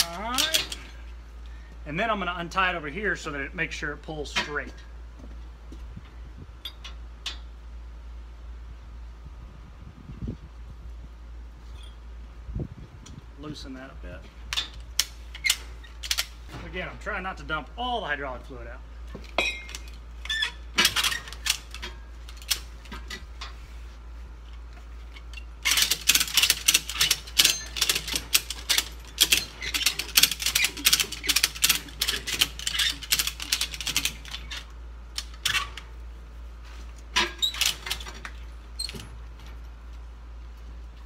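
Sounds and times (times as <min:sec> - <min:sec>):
ratchet strap clicking: 0:25.2 - 0:35.8.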